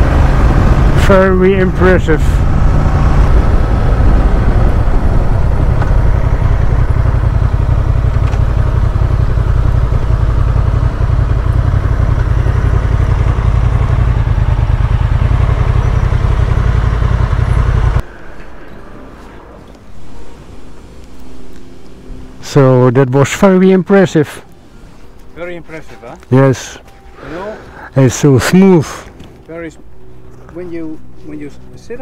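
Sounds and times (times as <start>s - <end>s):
motorcycle engine at speed: 0.0s - 18.0s.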